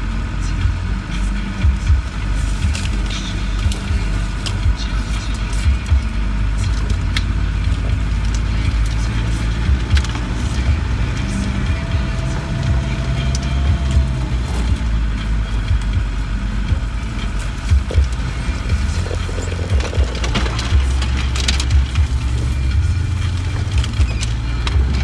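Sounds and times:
vehicle engine droning: 0:00.0 - 0:25.0
branches scraping bodywork: 0:16.8 - 0:25.0.

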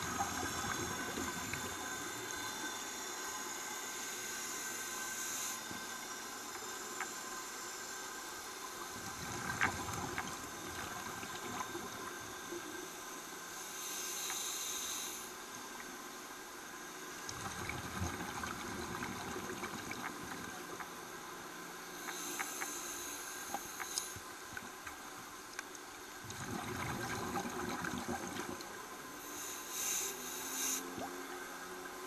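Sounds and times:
bubbles rumbling and gurgling: 0:00.0 - 0:01.9, 0:09.0 - 0:12.1, 0:17.3 - 0:20.9, 0:26.2 - 0:28.8
regulator inhale hiss: 0:00.0 - 0:06.3, 0:13.5 - 0:15.5, 0:21.8 - 0:24.3, 0:29.2 - 0:31.0.

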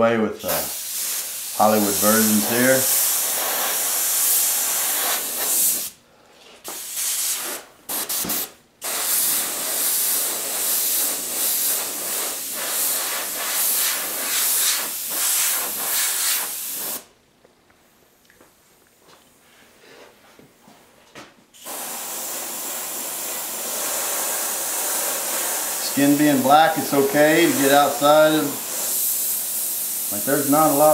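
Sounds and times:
airbrush hissing: 0:00.4 - 0:06.0, 0:06.7 - 0:17.1, 0:21.6 - 0:30.9.

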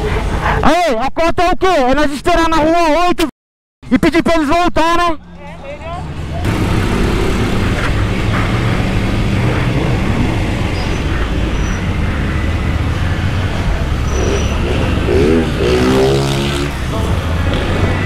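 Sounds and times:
motorcycle engine running at low speed: 0:06.5 - 0:18.0.

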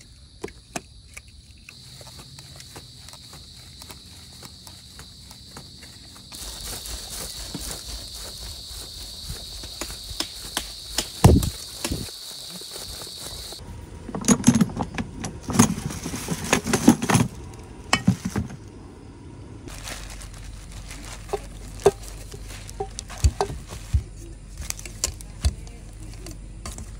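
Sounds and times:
insects droning: 0:00.0 - 0:26.9
gear knocking and clattering: 0:14.1 - 0:18.6.

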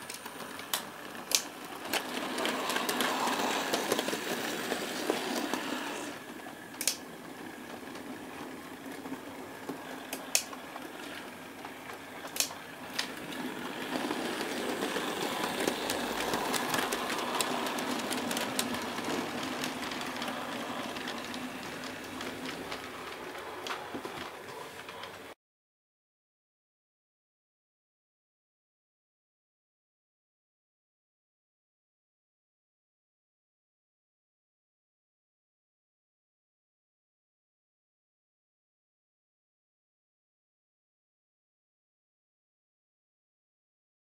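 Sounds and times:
wheels rumbling on rails: 0:00.0 - 0:25.4.

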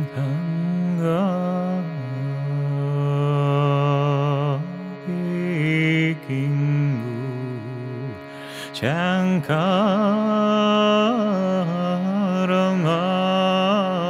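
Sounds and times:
overtone singing: 0:00.0 - 0:14.0
shruti box drone: 0:00.0 - 0:14.0.

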